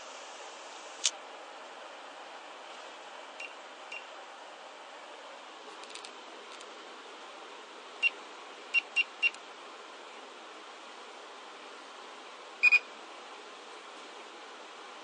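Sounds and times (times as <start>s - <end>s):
buzzer beeps: 8.0s - 9.4s, 12.6s - 12.9s.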